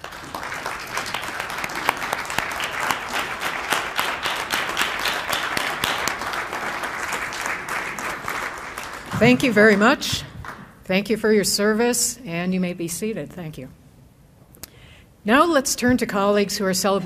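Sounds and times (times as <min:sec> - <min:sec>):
audience applauding: 0:00.0 - 0:10.6
sharp individual claps: 0:00.0 - 0:10.7.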